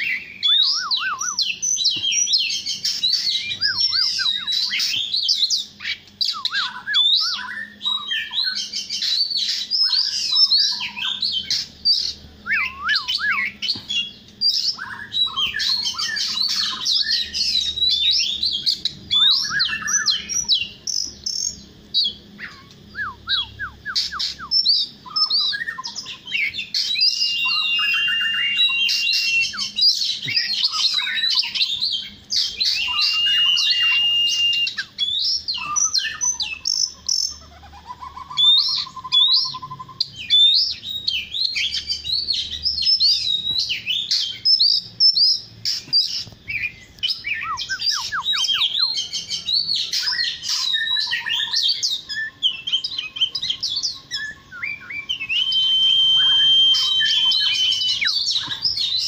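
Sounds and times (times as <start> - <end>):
bird singing whistles and trills: 0.0 - 59.0.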